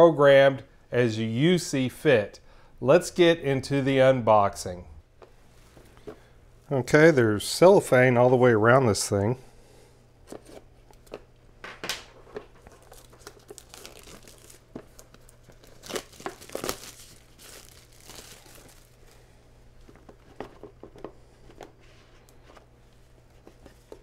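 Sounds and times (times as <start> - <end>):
cellophane crackling: 12.5 - 20.4.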